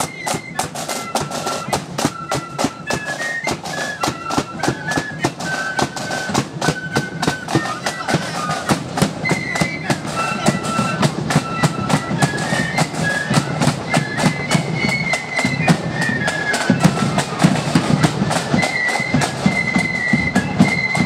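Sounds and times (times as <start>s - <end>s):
shrill flutes playing melody: 0.0s - 21.0s
snare and bass drums beat: 0.0s - 21.0s.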